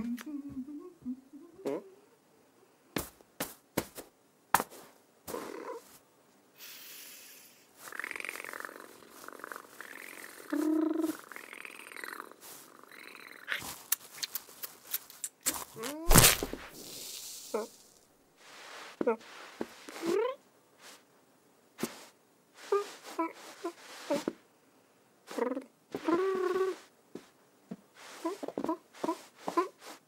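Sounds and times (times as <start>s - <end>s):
person imitating cat purring: 0.0s - 2.2s, 5.3s - 5.9s, 7.1s - 13.8s, 22.6s - 24.4s, 25.3s - 26.9s
person imitating cat call: 10.0s - 11.2s.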